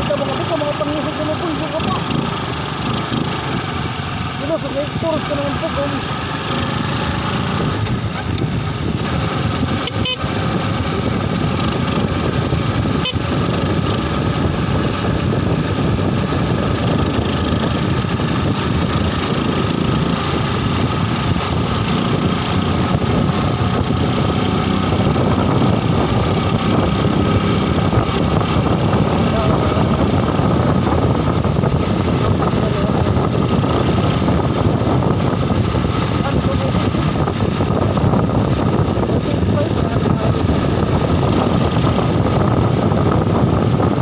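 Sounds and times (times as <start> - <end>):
motorcycle engine accelerating: 0.0 - 44.0
gear shift: 7.5 - 10.3.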